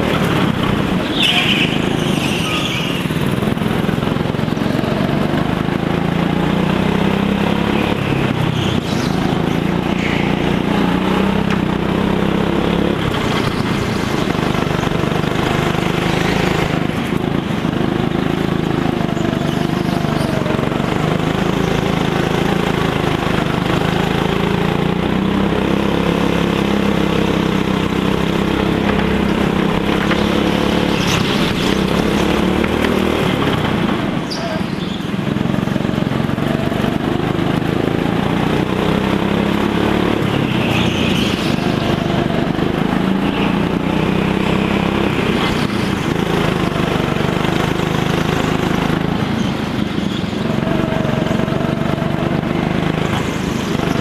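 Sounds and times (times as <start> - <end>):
go-kart engine running: 0.0 - 54.0.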